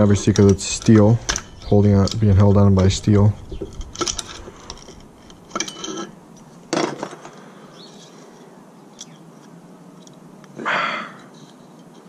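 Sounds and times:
metal parts scraping: 3.4 - 9.2.

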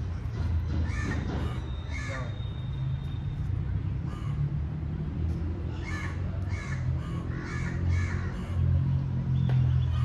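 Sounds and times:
crow cawing: 0.8 - 2.3, 5.8 - 8.6.

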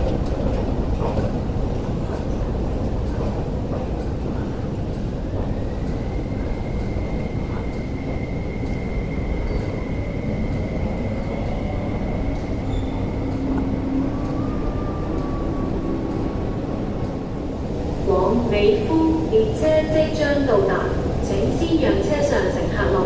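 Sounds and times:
train rumbling on track: 0.0 - 23.0.

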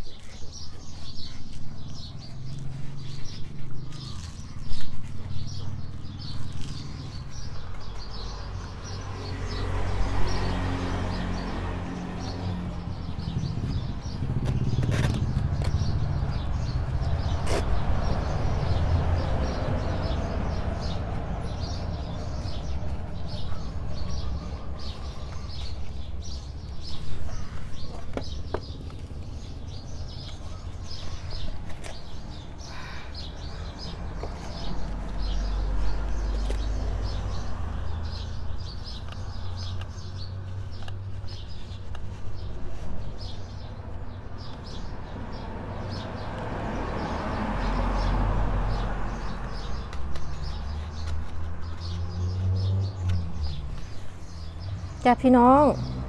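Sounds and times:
small birds chirping: 0.0 - 56.0.

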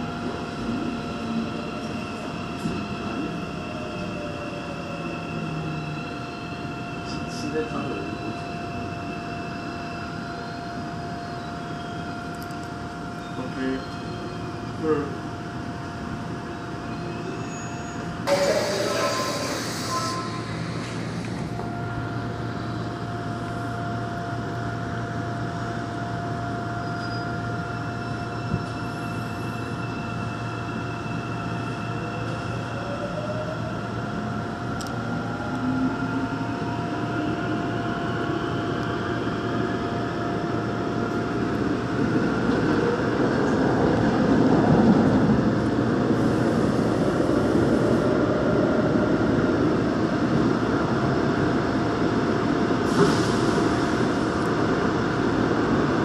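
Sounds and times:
electric train motors whining: 18.3 - 24.6.

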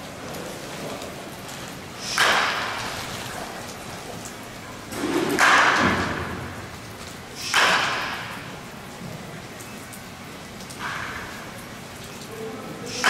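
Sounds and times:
baseball bat cracking against ball: 2.0 - 2.8, 5.0 - 6.6, 7.4 - 8.5.

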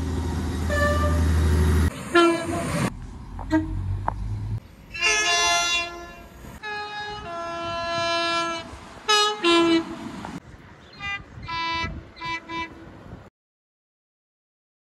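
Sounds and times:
train horn blasts: 0.7 - 1.3, 2.1 - 2.7, 4.9 - 10.0, 11.0 - 12.8.

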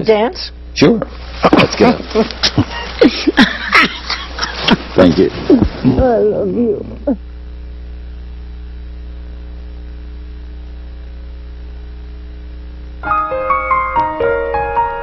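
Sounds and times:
low electrical hum: 0.0 - 15.0
piano music: 13.0 - 15.0.

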